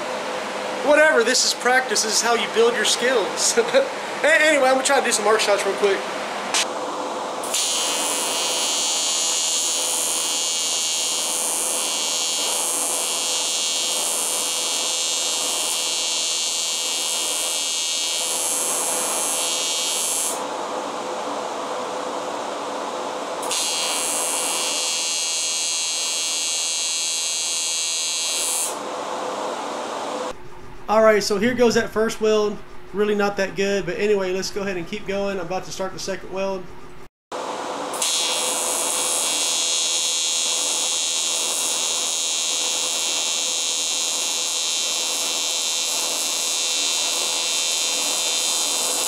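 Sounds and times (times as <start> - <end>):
welding arc buzzing: 7.4 - 20.5, 23.4 - 28.8, 37.9 - 49.0.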